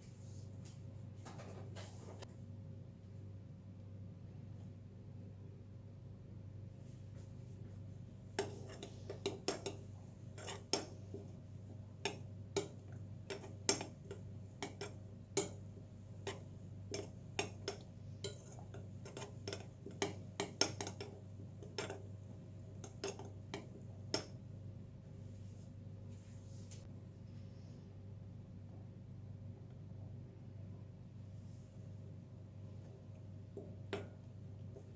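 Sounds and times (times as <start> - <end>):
fork clinking against ceramic bowl: 8.4 - 9.8, 10.4 - 11.0, 12.0 - 15.6, 16.2 - 22.0.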